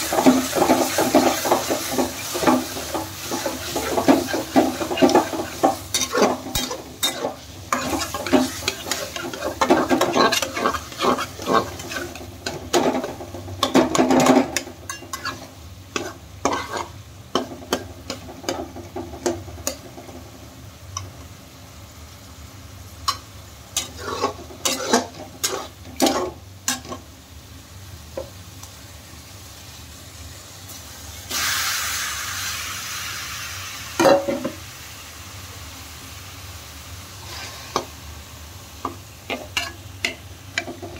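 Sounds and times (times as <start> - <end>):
spatula scraping pan: 0.0 - 19.9, 23.8 - 27.0
food sizzling in hot fat: 0.0 - 40.9.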